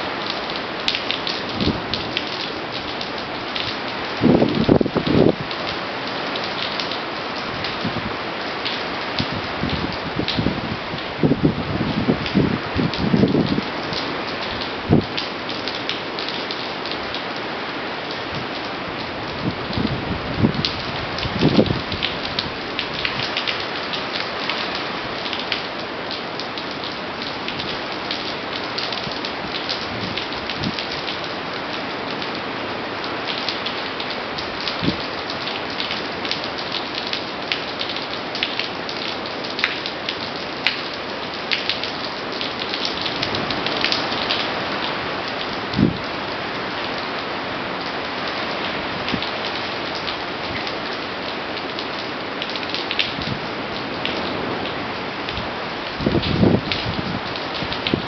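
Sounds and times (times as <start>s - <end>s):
heavy rain hissing: 0.0s - 58.0s
strong gusting wind: 4.0s - 5.7s, 7.4s - 8.4s, 9.0s - 15.2s, 18.3s - 23.5s, 29.0s - 30.8s, 34.6s - 35.0s, 42.9s - 46.7s, 53.0s - 58.0s.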